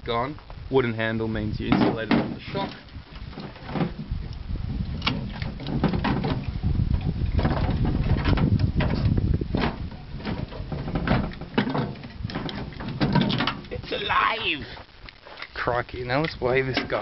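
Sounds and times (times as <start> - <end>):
metallic clunks and rattles: 1.7 - 4.2, 5.0 - 13.7.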